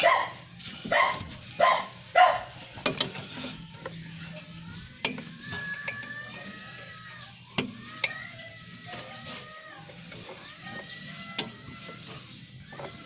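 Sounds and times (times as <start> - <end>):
dog barking: 0.0 - 2.5.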